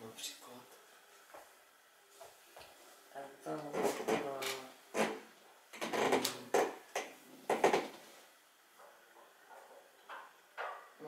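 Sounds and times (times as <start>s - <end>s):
sharp knocks and clatters: 5.8s - 8.0s, 8.8s - 11.0s.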